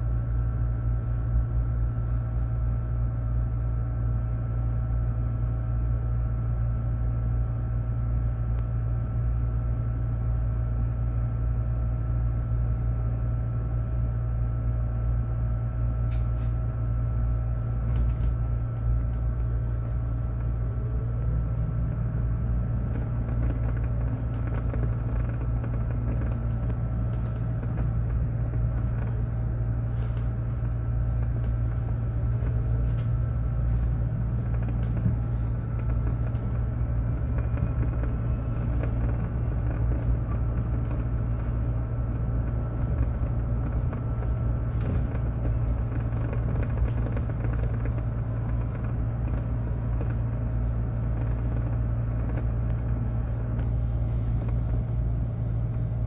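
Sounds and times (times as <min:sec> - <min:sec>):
bus low rumble: 0:00.0 - 0:56.0
constant electric hum: 0:00.0 - 0:56.0
body creaks and rattles: 0:22.6 - 0:41.8, 0:42.4 - 0:55.4.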